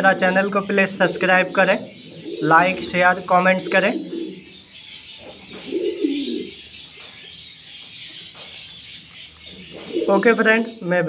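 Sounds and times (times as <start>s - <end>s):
pigeon cooing: 0.0s - 10.8s.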